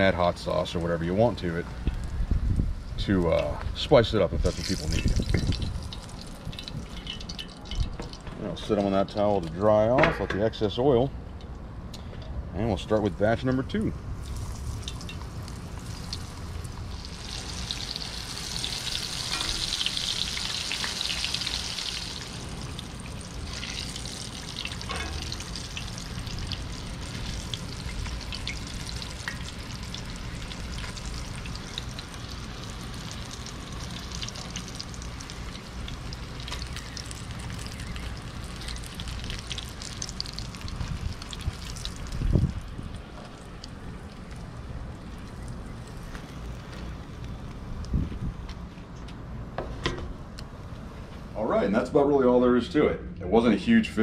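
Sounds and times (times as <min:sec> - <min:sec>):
fish sizzling in hot oil: 0:04.4 - 0:08.2, 0:14.2 - 0:42.5.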